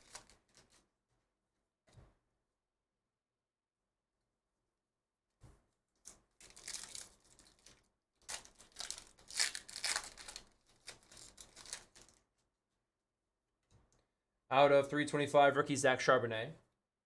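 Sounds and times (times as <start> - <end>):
foil wrapper tearing and crinkling: 0.0 - 0.8, 6.0 - 12.2.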